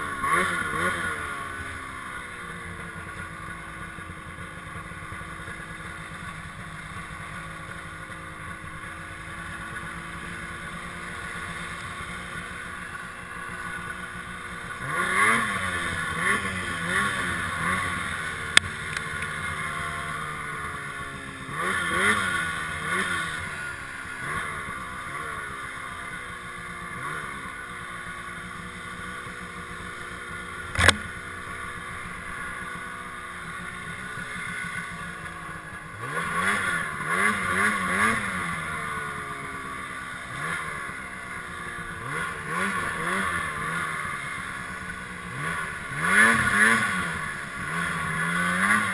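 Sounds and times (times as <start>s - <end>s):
snowmobile engine revving: 0.0s - 48.9s
sharp knock: 30.7s - 31.0s.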